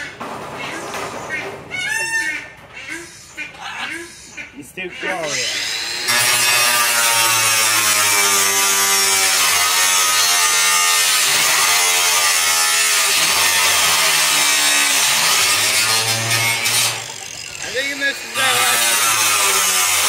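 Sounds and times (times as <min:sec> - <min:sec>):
angle grinder cutting metal: 0:05.0 - 0:20.0.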